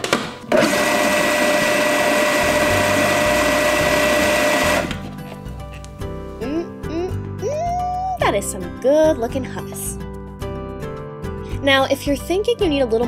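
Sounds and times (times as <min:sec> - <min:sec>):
food processor motor whining: 0:00.5 - 0:05.1.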